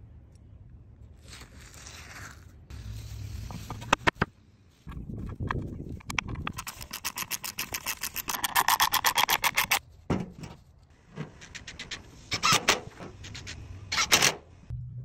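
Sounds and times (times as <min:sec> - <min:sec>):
fast clicking: 0:05.2 - 0:09.8.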